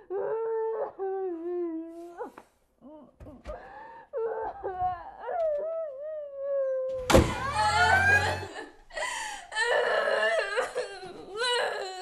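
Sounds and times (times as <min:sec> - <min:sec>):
woman crying and wailing: 0:04.2 - 0:12.0
woman sobbing loudly: 0:07.4 - 0:12.0.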